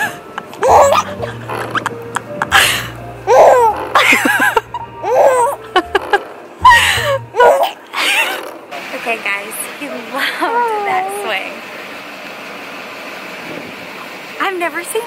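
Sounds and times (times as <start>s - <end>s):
baby laughing: 0.0s - 8.4s, 10.4s - 11.5s.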